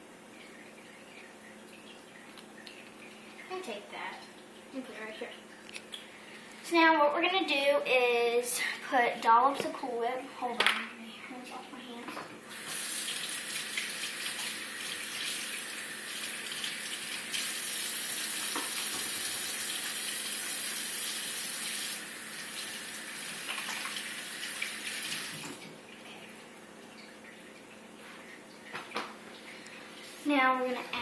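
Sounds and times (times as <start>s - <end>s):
faucet running into steel sink: 12.5s - 25.6s.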